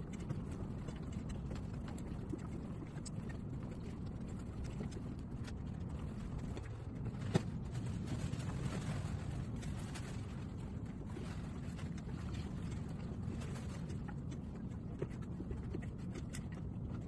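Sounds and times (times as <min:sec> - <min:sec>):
low background rumble: 0:00.0 - 0:17.0.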